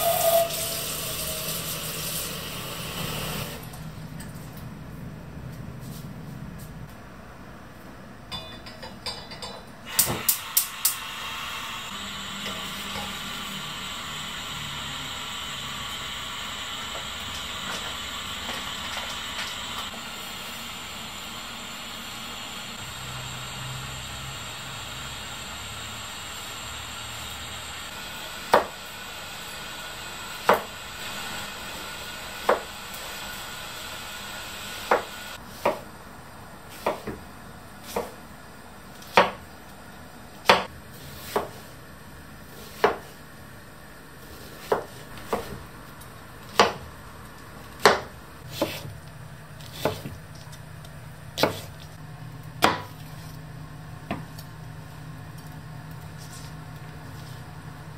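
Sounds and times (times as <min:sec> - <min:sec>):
gas stove hissing: 0:00.0 - 0:03.8, 0:09.8 - 0:35.8
knife chopping on wooden board: 0:34.9 - 0:35.8, 0:36.7 - 0:37.2, 0:39.0 - 0:39.4, 0:40.4 - 0:41.7, 0:42.7 - 0:43.1, 0:46.5 - 0:46.8, 0:47.8 - 0:48.9, 0:49.6 - 0:50.2, 0:51.4 - 0:51.8, 0:52.6 - 0:53.0.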